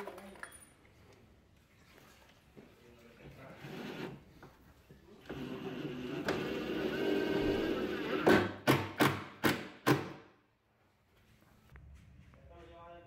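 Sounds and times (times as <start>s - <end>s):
cordless drill boring: 5.2s - 8.4s.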